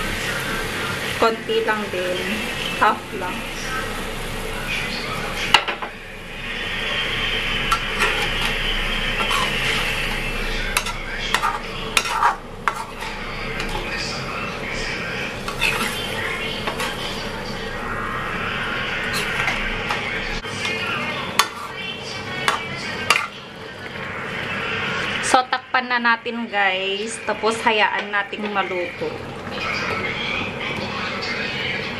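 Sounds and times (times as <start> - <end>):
liquid sizzling: 0.0 - 25.9, 26.6 - 31.8
metal utensil scraping pan: 7.7 - 8.6, 9.2 - 10.0, 10.7 - 13.9, 15.4 - 17.2, 20.6 - 23.4.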